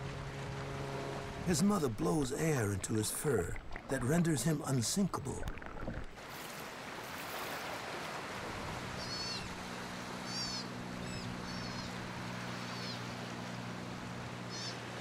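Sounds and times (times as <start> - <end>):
low steady hum: 0.0 - 6.2
ocean surf: 0.0 - 10.9.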